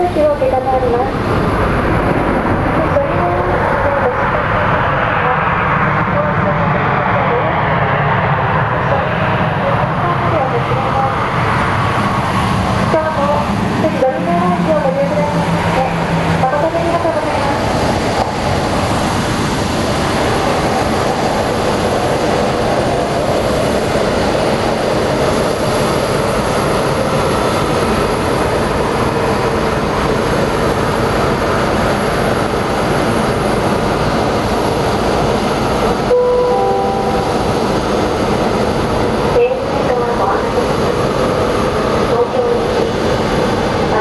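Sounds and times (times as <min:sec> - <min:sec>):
jet engines rumbling: 0:00.0 - 0:44.0
descending public address chime: 0:36.1 - 0:37.8.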